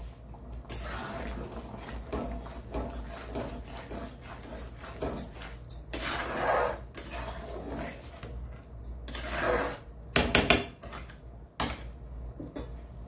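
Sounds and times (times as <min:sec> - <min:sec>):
spatula stirring thick gravy: 0:00.0 - 0:10.0.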